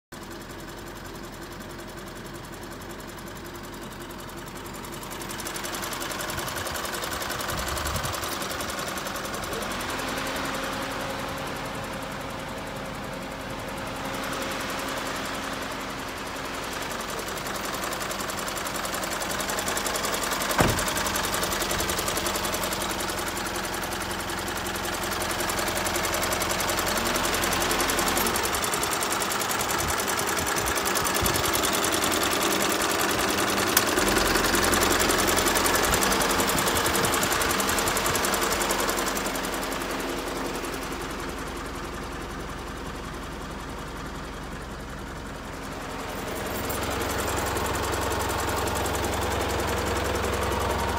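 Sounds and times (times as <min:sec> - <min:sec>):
diesel engine idling: 0:00.2 - 0:50.9
sharp knock: 0:20.6 - 0:20.9.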